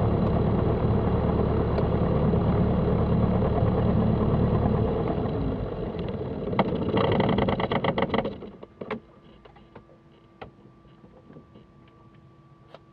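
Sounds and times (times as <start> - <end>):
light aircraft engine idling: 0.0 - 12.9
faint steady hum: 8.4 - 12.9.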